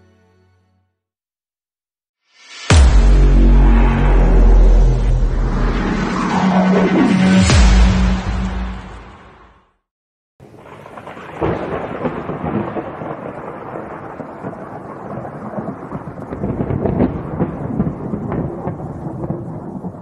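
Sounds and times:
crackling thunderclap: 0:10.6 - 0:20.0
thunder rumbling: 0:10.6 - 0:20.0.

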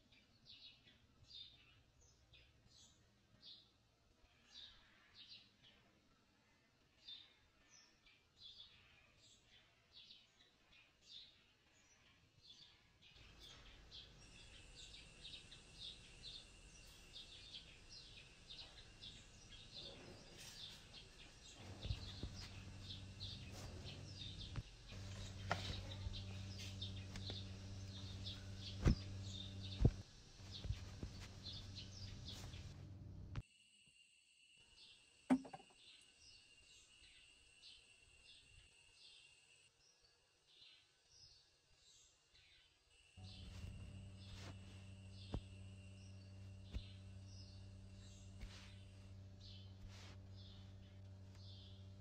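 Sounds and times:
birds chirping: 0:07.0 - 0:33.4, 0:43.2 - 0:52.0
low steady hum: 0:13.1 - 0:33.4, 0:43.2 - 0:52.0
faint high whine: 0:13.2 - 0:39.8, 0:42.9 - 0:52.0
sharp knocks: 0:35.3 - 0:35.7.

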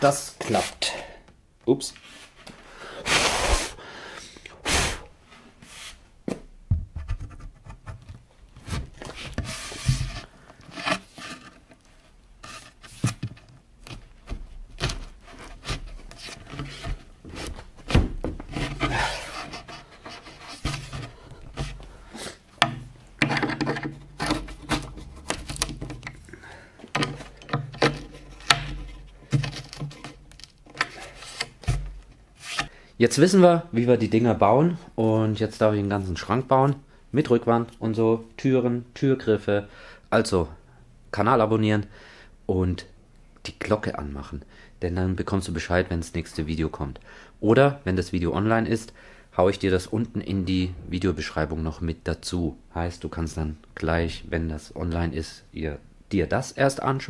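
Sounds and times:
wood rubbing and scraping: 0:07.0 - 0:32.7.

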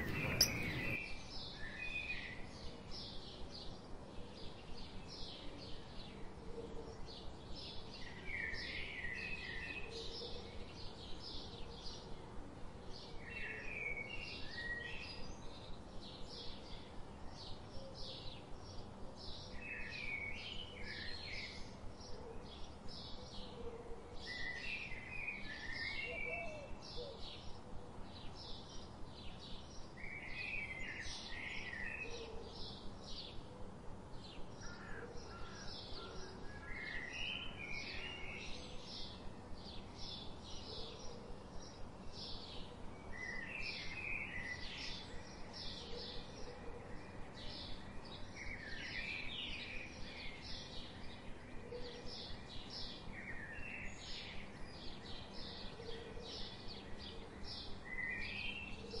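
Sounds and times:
bird chirping evenly: 0:00.0 - 0:01.0
birds warbling: 0:00.0 - 0:01.0
faint background hiss: 0:00.0 - 0:59.0.

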